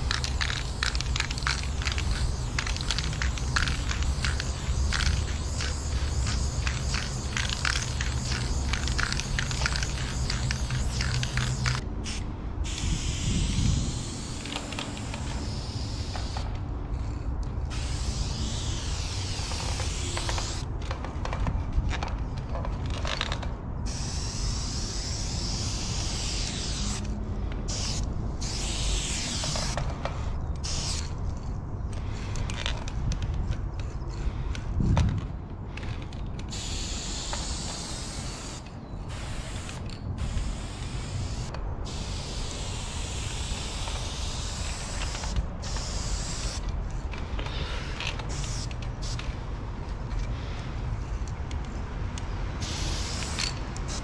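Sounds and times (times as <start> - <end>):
spray paint can hissing: 0.0 - 20.7, 23.8 - 27.1, 27.7 - 31.2, 36.5 - 46.7, 47.4 - 49.3, 52.6 - 54.0.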